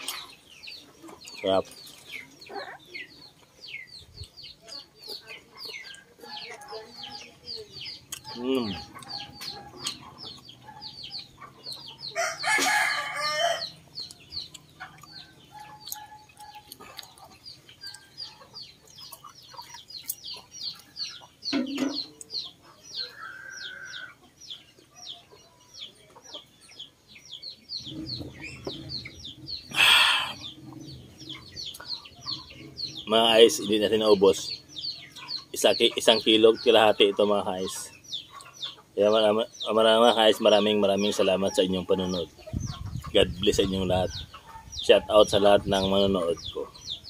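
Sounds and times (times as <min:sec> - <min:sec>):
rooster crowing: 0:12.1 - 0:13.8.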